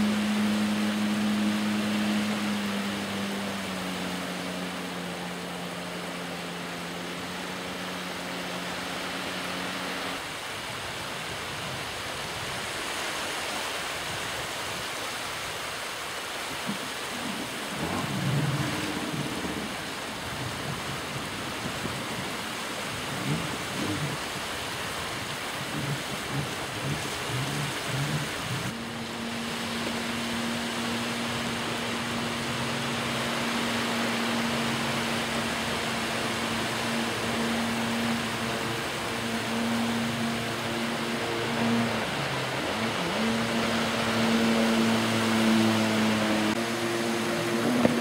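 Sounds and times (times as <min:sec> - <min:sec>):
distant jet ski engine droning: 0:00.0 - 0:11.0, 0:14.4 - 0:48.0
wind noise on microphone: 0:16.7 - 0:28.8.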